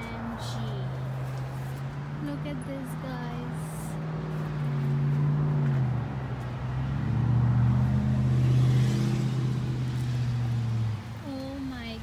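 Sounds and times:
engine humming: 0.0s - 12.0s.

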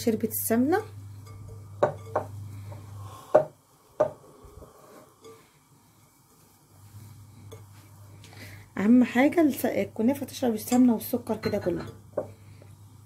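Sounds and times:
low steady hum: 0.0s - 13.0s
sharp knocks against glass bowl: 1.3s - 2.4s
hands mixing dough rustling: 4.5s - 10.6s.

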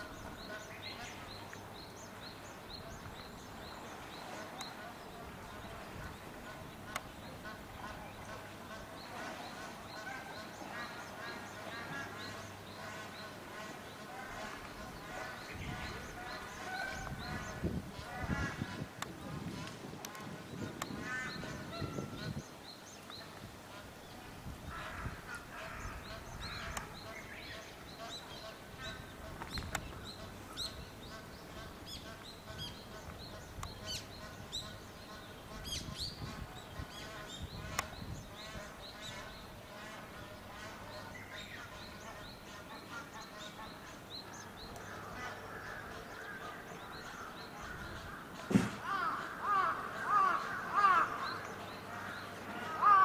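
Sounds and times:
birds chirping: 0.0s - 53.0s
loud repeated bird calls: 24.7s - 53.0s
sharp knock: 48.5s - 48.8s.

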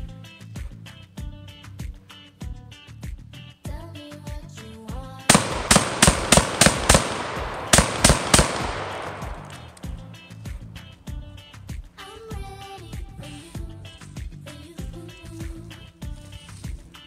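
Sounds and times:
shotgun shots: 5.3s - 10.1s.

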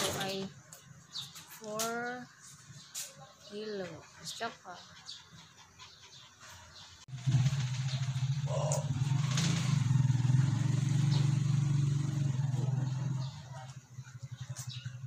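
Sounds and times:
engine idling: 7.1s - 15.0s.

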